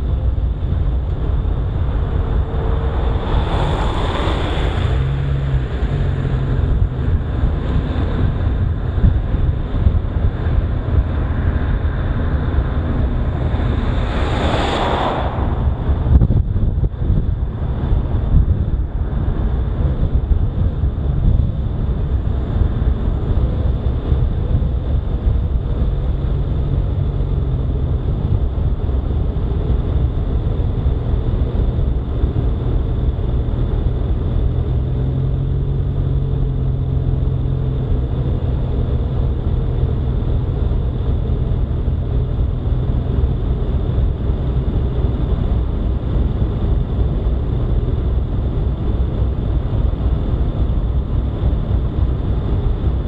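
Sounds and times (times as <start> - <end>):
faint engine hum: 0.0 - 53.0
tyre and wind noise: 0.0 - 53.0.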